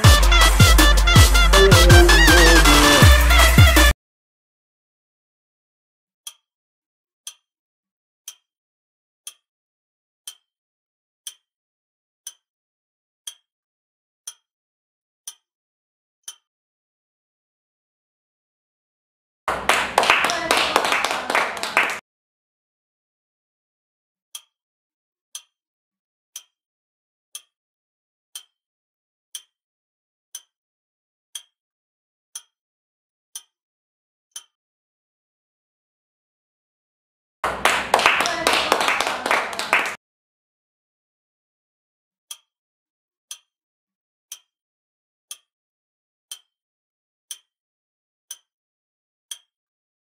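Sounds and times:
clock ticking: 0:00.0 - 0:03.9.

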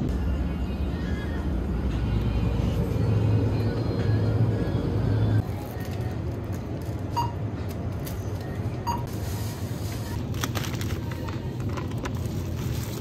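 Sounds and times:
plastic packaging rustling: 0:07.9 - 0:13.0.

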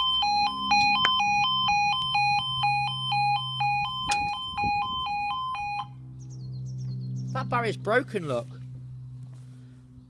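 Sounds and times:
two-tone crossing alarm: 0:00.0 - 0:06.0.

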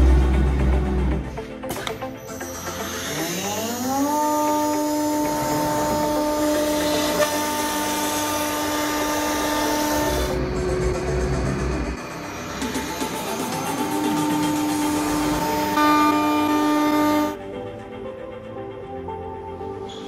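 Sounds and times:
router spindle whine: 0:02.2 - 0:17.4.

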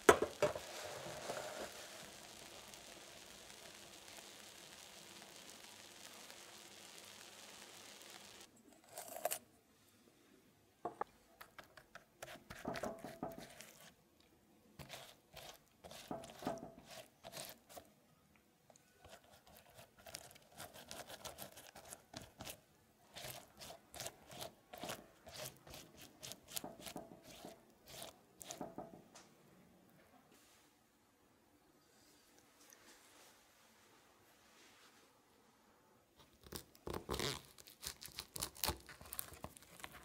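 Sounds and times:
pastry brush dabbing glaze: 0:11.8 - 0:14.0, 0:14.7 - 0:18.0, 0:18.7 - 0:29.0.

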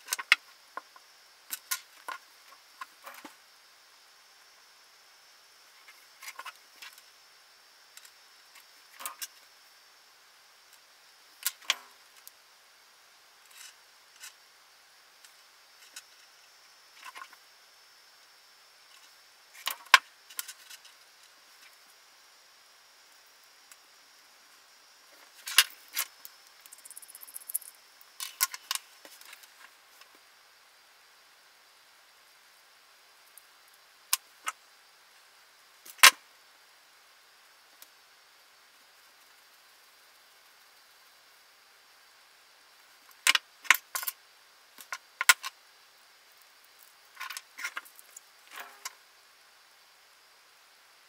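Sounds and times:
small parts clicking and clattering: 0:00.0 - 0:03.4, 0:08.0 - 0:09.4, 0:13.4 - 0:14.4, 0:18.9 - 0:21.8, 0:25.4 - 0:30.1, 0:43.1 - 0:44.2, 0:46.7 - 0:49.0
handling noises scraping on wood: 0:48.5 - 0:48.9.

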